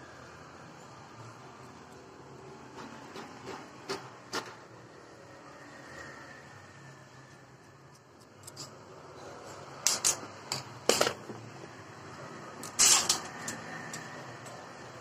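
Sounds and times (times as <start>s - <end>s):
metal parts clicking and clattering: 9.8s - 11.3s, 12.5s - 14.6s.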